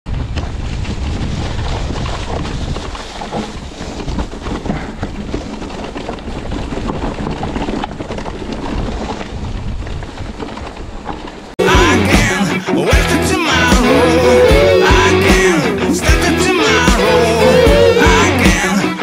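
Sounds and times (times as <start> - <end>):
bike knocks and rattles: 0.1 - 11.5
wind on camera microphone: 0.1 - 11.5
tyres rolling over dirt and stones: 0.1 - 11.6.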